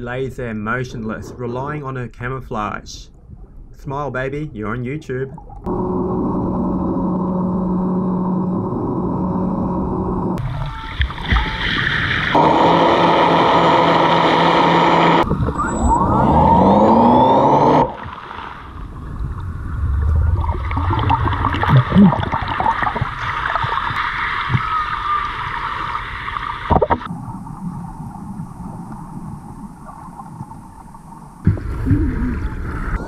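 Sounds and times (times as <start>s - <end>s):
underwater crackling and bubbling: 5.3s - 12.4s, 17.8s - 33.0s
boat engine underwater: 5.3s - 33.0s.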